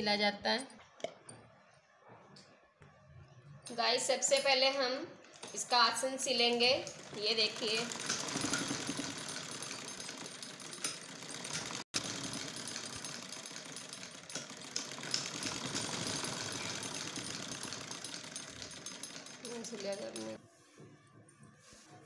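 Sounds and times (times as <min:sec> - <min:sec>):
sewing machine running: 0:05.3 - 0:20.4.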